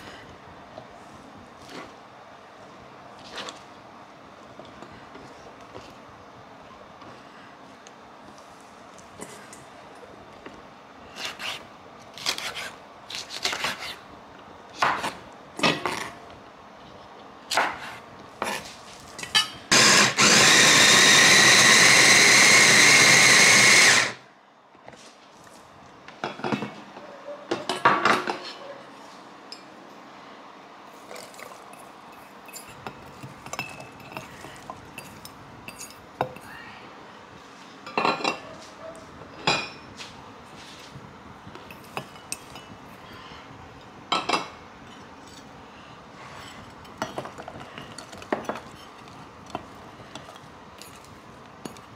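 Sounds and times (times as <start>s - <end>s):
electric food chopper running: 19.7s - 24.2s.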